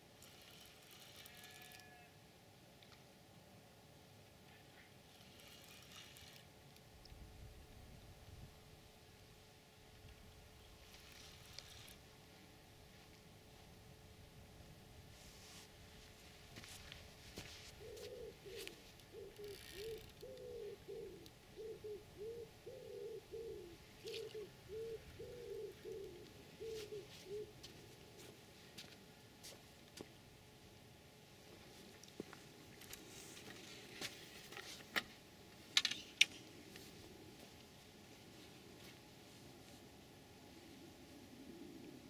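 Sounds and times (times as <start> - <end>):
faint background hiss: 0.0 - 42.0
faint steady hum: 0.0 - 42.0
pigeon cooing: 17.8 - 27.7, 40.9 - 42.0.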